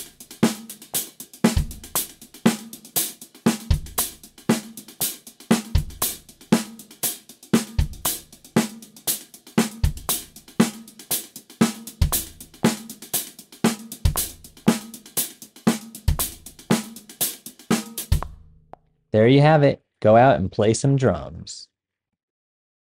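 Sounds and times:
hi-hat strokes: 0:00.0 - 0:18.3
bass drum kick: 0:01.6 - 0:02.1, 0:12.0 - 0:12.6, 0:14.1 - 0:14.6, 0:18.1 - 0:18.5
snare backbeats: 0:17.7 - 0:18.4.

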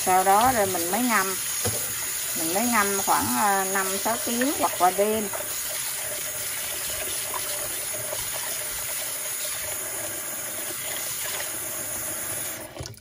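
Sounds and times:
tap running into a pot: 0:01.6 - 0:02.1.

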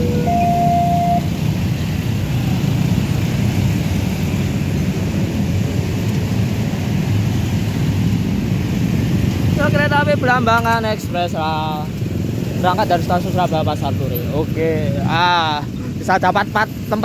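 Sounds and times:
two-tone crossing warning alarm: 0:00.0 - 0:01.6
traffic rumble of engines and tyres: 0:00.0 - 0:17.0.

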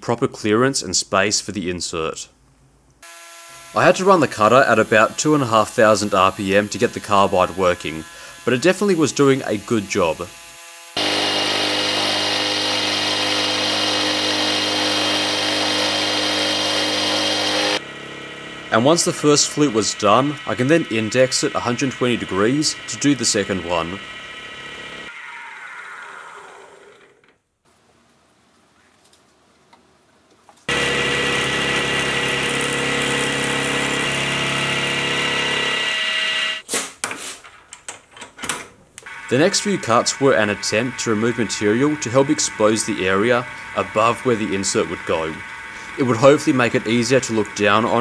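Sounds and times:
milling machine cutting steel: 0:03.1 - 0:25.1, 0:30.7 - 0:36.6, 0:39.1 - 0:48.0.

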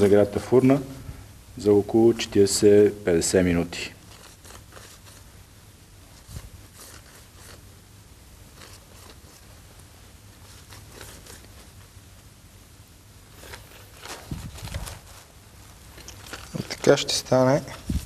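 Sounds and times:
pastry sheets crinkling: 0:04.0 - 0:05.4, 0:08.4 - 0:12.0, 0:13.3 - 0:18.0.

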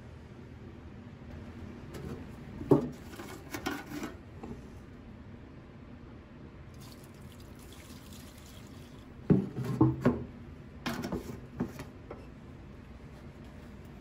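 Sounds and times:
liquid pouring into plastic tub: 0:06.7 - 0:09.2
metal can clunking: 0:09.3 - 0:10.3.

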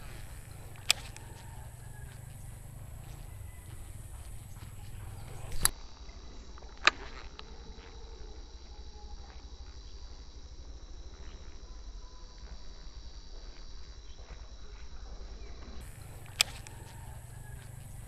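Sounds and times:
low outdoor rumble: 0:00.0 - 0:05.7, 0:15.8 - 0:18.0
sharp click: 0:00.0 - 0:05.7, 0:15.8 - 0:18.0
crickets chirring: 0:00.0 - 0:18.0.

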